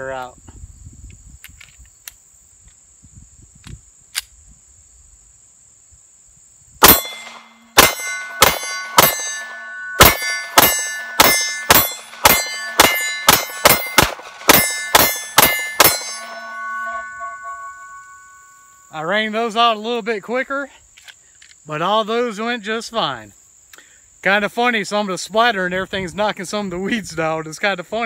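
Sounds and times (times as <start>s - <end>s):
insects chirring: 0.0s - 28.0s
pistol shots: 6.8s - 17.8s
bullets clanging on steel targets: 6.8s - 18.4s.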